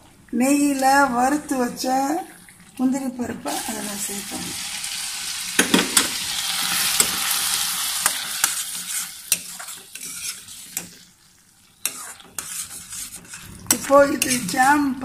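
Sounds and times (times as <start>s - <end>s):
halwa bubbling and sizzling in pan: 0.0s - 15.0s.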